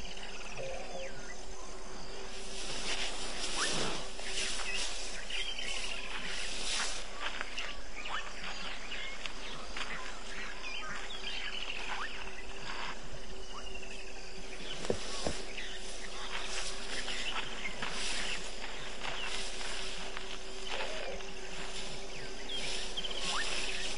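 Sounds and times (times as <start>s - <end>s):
insects chorus: 0.0s - 23.9s
bird trilled call: 20.6s - 23.9s.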